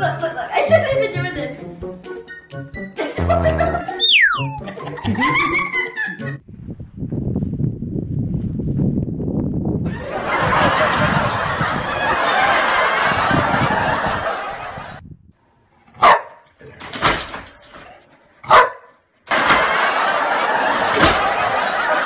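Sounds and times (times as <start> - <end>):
dog barking: 16.0 - 16.5, 18.4 - 19.0.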